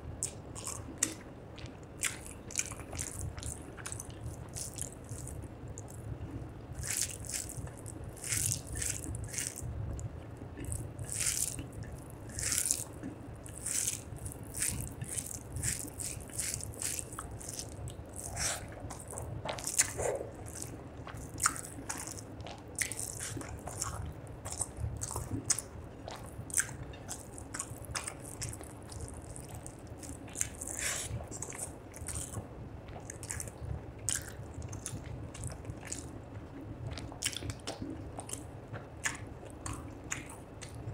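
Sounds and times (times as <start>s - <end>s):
fingers squishing rice: 0.2s - 6.0s, 6.8s - 9.6s, 10.6s - 33.5s
chewing mouthfuls: 0.2s - 6.1s, 6.7s - 40.8s.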